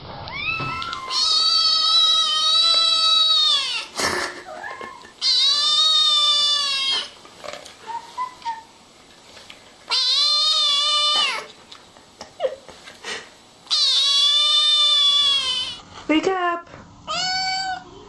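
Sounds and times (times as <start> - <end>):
cat meowing: 0.3 - 3.9, 4.9 - 7.2, 9.9 - 11.5, 13.7 - 15.8, 17.1 - 17.9.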